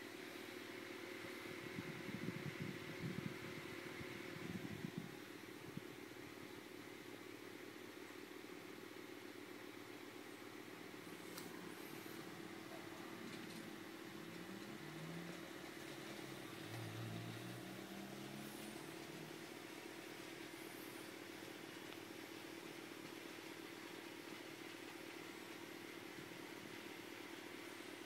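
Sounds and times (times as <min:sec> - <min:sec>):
model train motor hum: 0:11.0 - 0:22.0.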